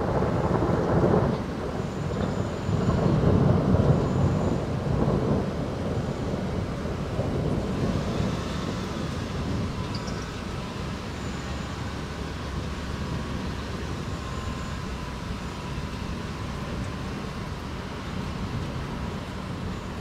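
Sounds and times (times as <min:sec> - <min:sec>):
soft thunder roll: 0:00.0 - 0:10.0
distant city traffic rumble: 0:00.0 - 0:20.0.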